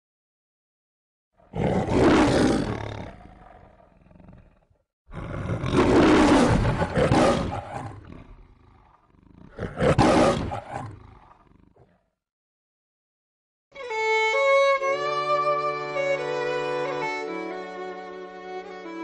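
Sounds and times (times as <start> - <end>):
lion roaring: 1.4 - 12.1.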